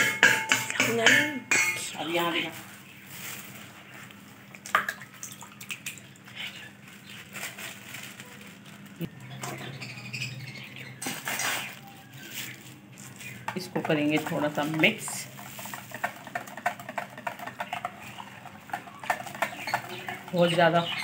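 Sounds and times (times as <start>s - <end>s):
steel spoon scraping a pot: 14.8s - 21.0s.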